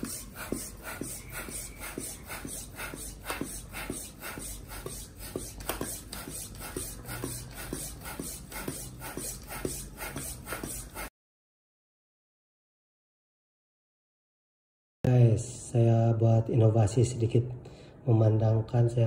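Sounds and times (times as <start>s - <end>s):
floor pump whooshing air: 0.0s - 11.1s.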